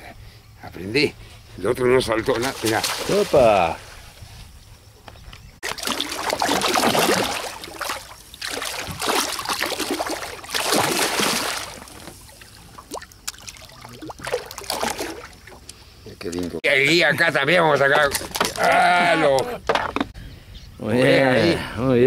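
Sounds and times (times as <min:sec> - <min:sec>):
fish thrashing and splashing: 0:02.4 - 0:03.6, 0:05.6 - 0:15.8, 0:18.0 - 0:18.9.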